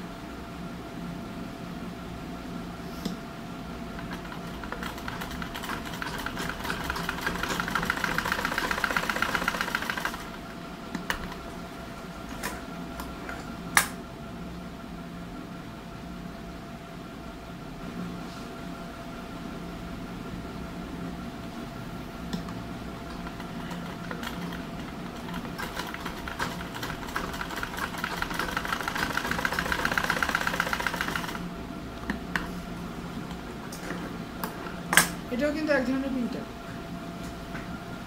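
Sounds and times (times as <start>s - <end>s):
steady hum: 0.0s - 38.0s
sewing machine stitching: 4.0s - 10.4s, 23.1s - 31.4s.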